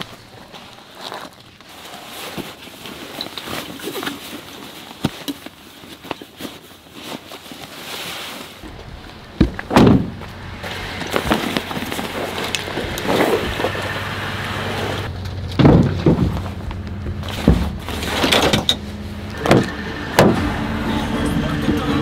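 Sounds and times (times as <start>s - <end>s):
footsteps on gravel: 6.4s - 19.7s
truck door thunk: 9.4s - 10.3s, 15.6s - 16.5s.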